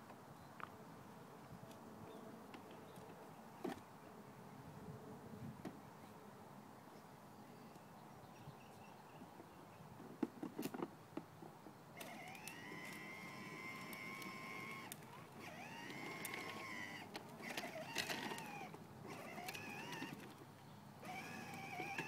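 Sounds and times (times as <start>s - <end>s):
toy car electric motor whining: 12.0s - 20.4s, 21.0s - 22.0s.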